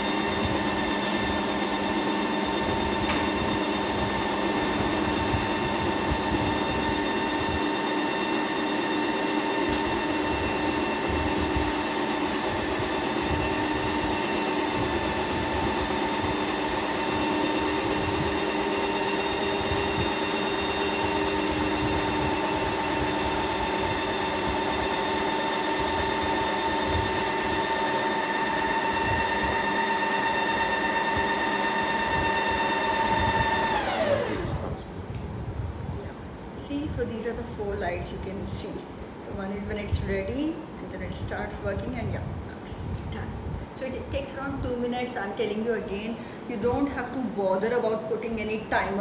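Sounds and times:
ice cream maker motor whine: 0.0s - 34.9s.

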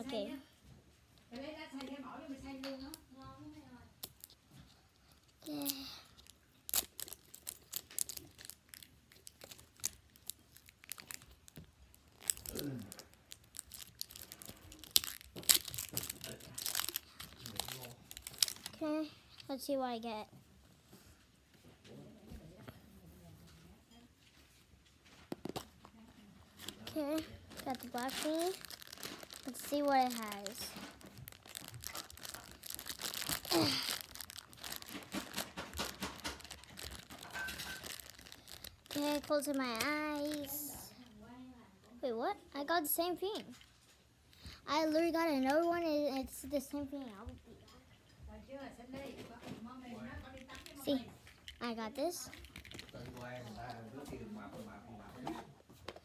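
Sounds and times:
packaging tearing and crinkling: 5.4s - 18.8s, 26.6s - 40.8s, 52.3s - 53.7s.

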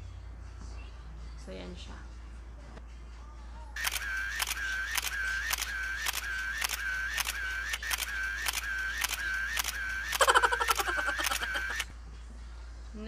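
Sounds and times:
camera shutter click and tone: 3.8s - 11.9s.

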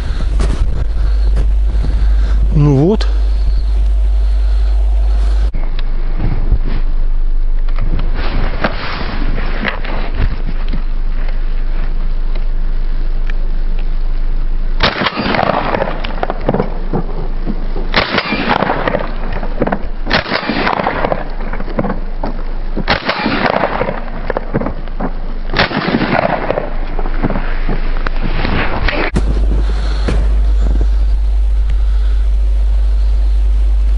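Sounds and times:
footsteps crunching in snow: 0.0s - 5.5s
wind rumble on microphone: 0.0s - 12.1s, 15.4s - 33.9s.

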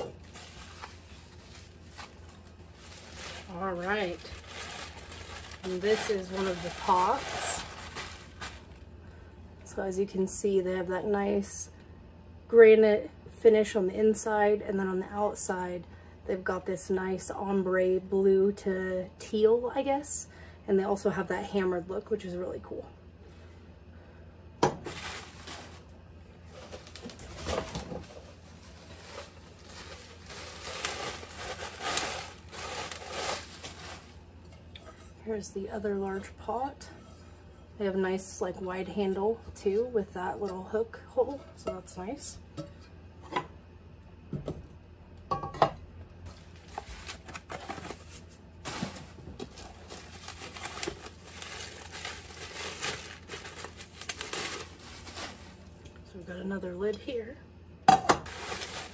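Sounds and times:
bubble wrap crinkling: 0.0s - 8.9s, 24.8s - 35.2s, 46.3s - 55.9s, 58.2s - 58.9s.

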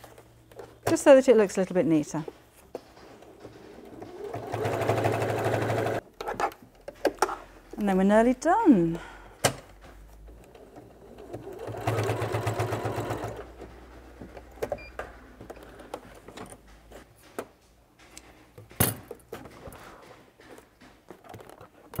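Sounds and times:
sewing machine stitching: 3.7s - 6.0s, 10.7s - 13.6s.

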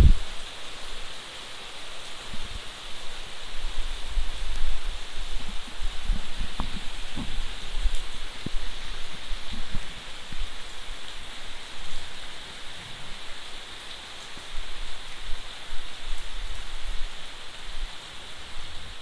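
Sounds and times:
rain falling on leaves: 0.0s - 19.0s.

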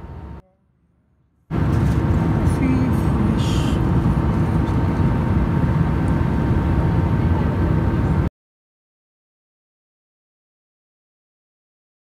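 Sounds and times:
airliner cabin noise: 1.5s - 8.3s.

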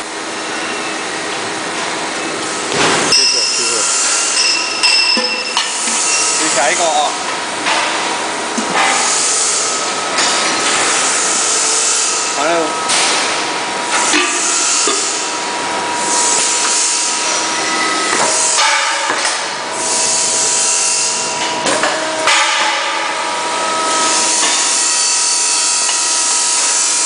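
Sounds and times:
machine high whine: 0.0s - 27.0s
hiss: 8.9s - 9.8s
sharp metallic knocks: 18.1s - 19.6s, 20.8s - 23.3s.

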